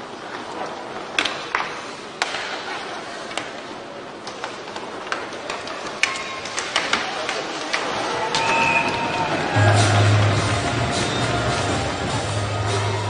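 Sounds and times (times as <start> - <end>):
hockey sticks striking puck: 0.3 - 12.7
puck hitting boards: 1.1 - 3.5.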